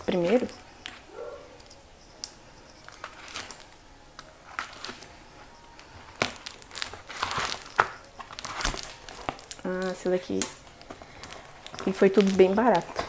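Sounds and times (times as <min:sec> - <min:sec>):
cardboard scraping and crinkling: 0:00.0 - 0:01.1, 0:04.4 - 0:10.1.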